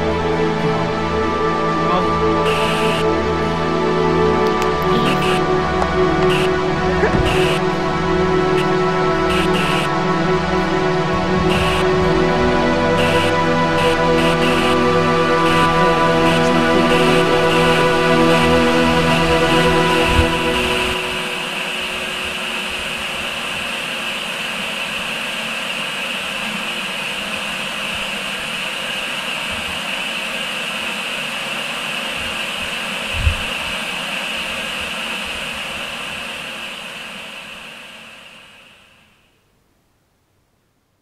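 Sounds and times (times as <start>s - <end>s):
static hiss: 2.4s - 3.7s, 4.4s - 41.0s
low thump: 7.0s - 7.6s.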